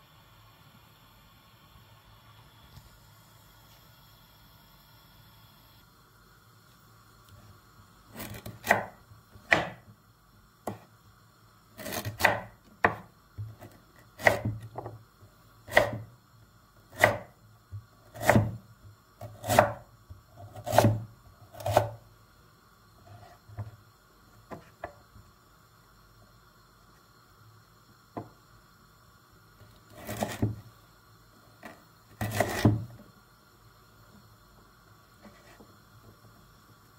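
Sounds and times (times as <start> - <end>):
knife cutting on wooden board: 8.1 - 8.9, 11.8 - 13.0, 20.6 - 21.0, 29.9 - 30.6, 32.2 - 32.8.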